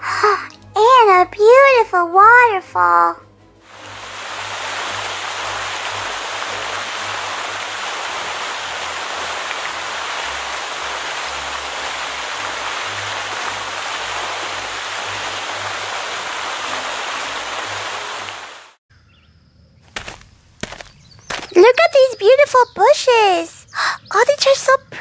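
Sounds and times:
rush of falling water: 3.6 - 18.8.

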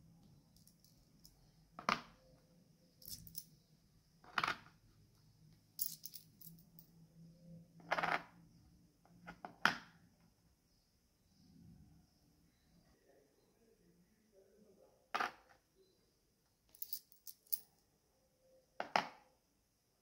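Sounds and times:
coins clinking: 3.0 - 3.5, 5.8 - 6.8, 16.8 - 17.7.

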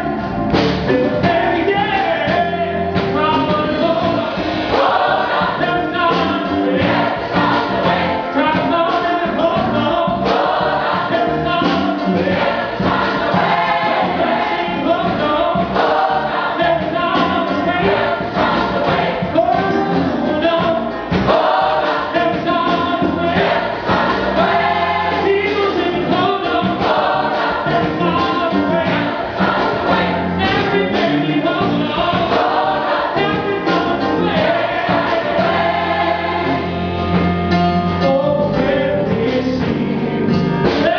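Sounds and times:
gospel choir singing: 0.0 - 40.9
instrumental accompaniment with beat: 0.0 - 40.9.

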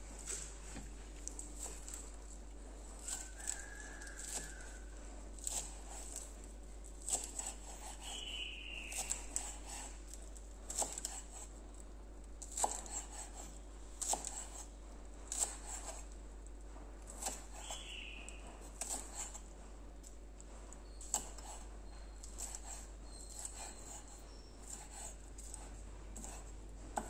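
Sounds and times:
knife chopping on wooden board: 3.0 - 4.8, 5.4 - 6.3, 7.0 - 8.2, 8.9 - 9.9, 10.7 - 11.5, 12.4 - 14.7, 15.3 - 16.1, 17.1 - 17.8, 18.6 - 19.4, 21.1 - 21.6, 22.2 - 27.0.

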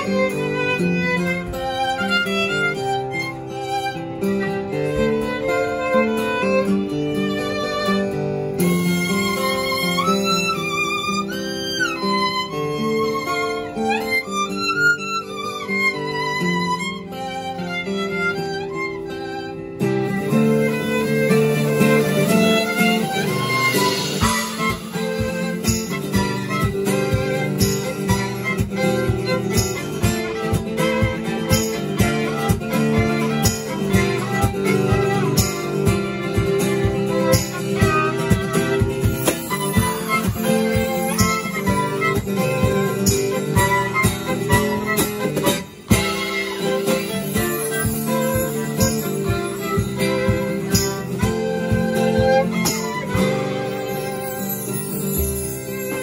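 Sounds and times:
acoustic guitar accompaniment: 0.0 - 56.0
steady cajon beat: 0.0 - 56.0
violin melody: 0.0 - 56.0
bright jingling accent: 45.2 - 56.0.

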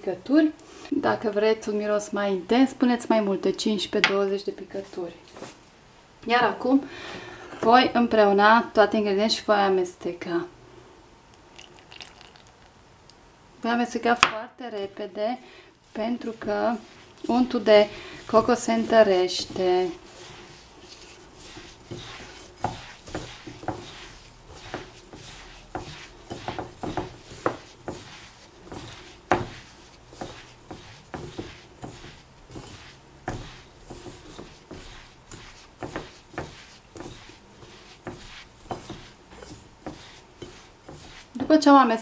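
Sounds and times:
hand rubbing mixture in plastic bowl: 14.7 - 42.0.

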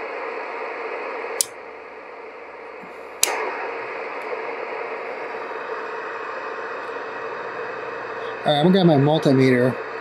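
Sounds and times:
radio static hiss: 0.0 - 10.0
switch clicks: 1.4 - 1.6, 3.2 - 3.5.

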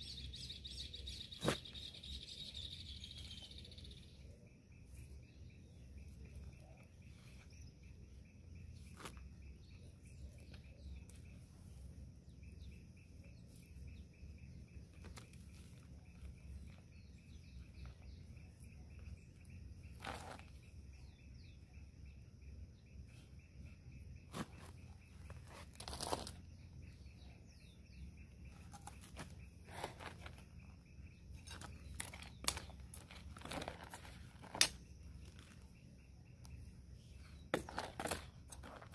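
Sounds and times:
faint bird chirps: 0.0 - 38.9
hand hoe scraping dirt: 0.7 - 2.5, 19.8 - 20.7, 24.2 - 26.5, 28.4 - 30.7, 31.4 - 35.6, 37.4 - 38.9
hands pressing soil: 8.6 - 11.5.

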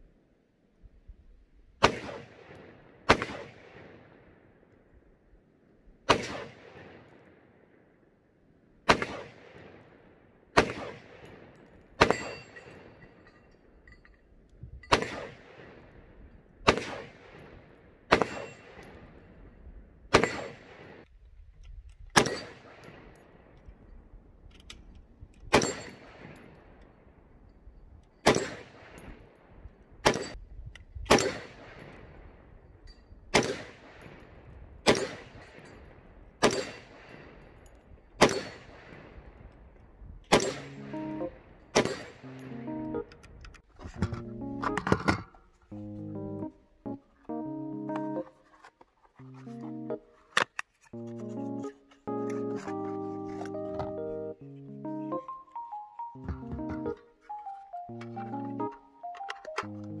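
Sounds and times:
rifle shots with echo: 1.8 - 4.6, 6.0 - 7.8, 8.8 - 13.0, 14.8 - 19.4, 20.1 - 21.1, 22.2 - 23.5, 28.2 - 29.4, 30.0 - 30.4, 31.1 - 32.5, 33.3 - 37.6, 38.2 - 39.5, 40.3 - 42.2.

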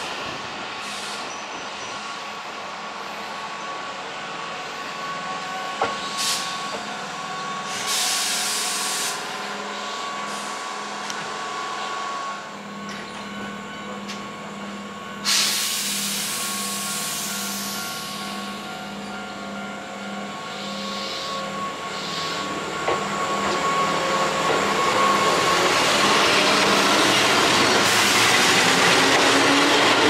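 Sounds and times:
train equipment whine: 0.0 - 30.0
air brake hiss: 0.8 - 1.3, 6.0 - 6.6, 7.7 - 9.3, 10.2 - 10.7, 15.2 - 18.2.

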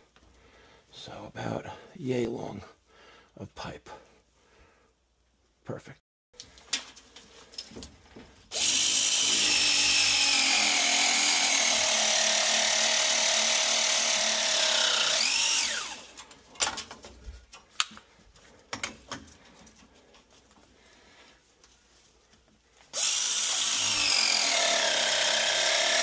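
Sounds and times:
press tool motor running: 8.5 - 16.1, 23.0 - 26.0
tool handling clicks and knocks: 16.1 - 20.3.

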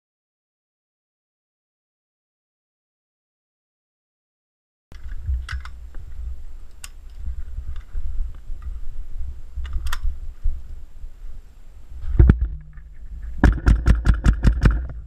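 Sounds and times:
airsoft rifle shots: 13.4 - 14.9.

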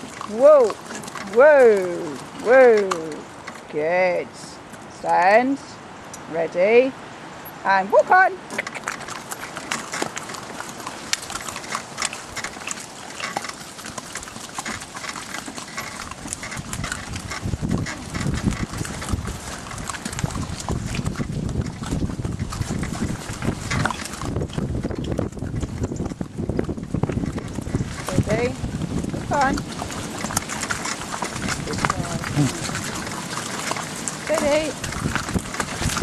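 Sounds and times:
hooves clip-clopping: 0.0 - 36.0.

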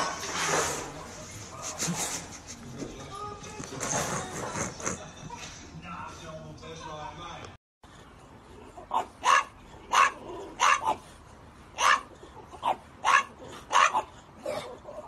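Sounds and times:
dog barking: 8.9 - 11.1, 11.8 - 15.0.

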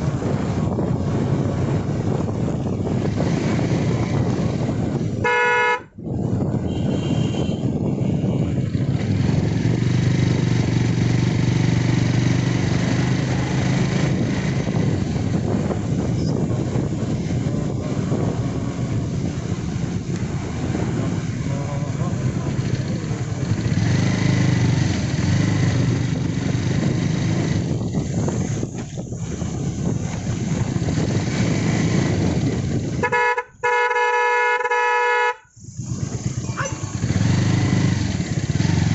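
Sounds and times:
motorcycle engine running: 0.0 - 34.6, 35.7 - 38.9
road and wind noise: 0.0 - 38.9
motorcycle horn: 5.0 - 8.6, 32.8 - 35.5.

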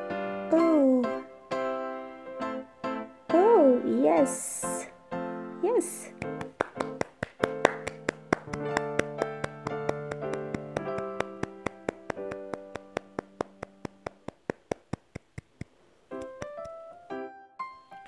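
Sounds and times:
sustained keyboard notes: 5.6 - 17.4
clicking beat: 6.2 - 17.0.

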